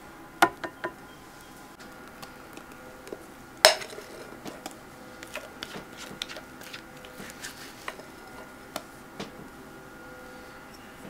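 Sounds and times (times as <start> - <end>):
spatula scraping glass bowl: 5.2 - 8.4.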